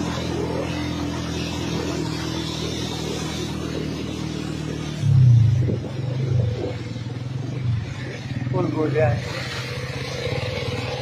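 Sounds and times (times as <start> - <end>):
tyres hissing on wet road: 0.0 - 11.0
vehicle engine running: 0.0 - 11.0.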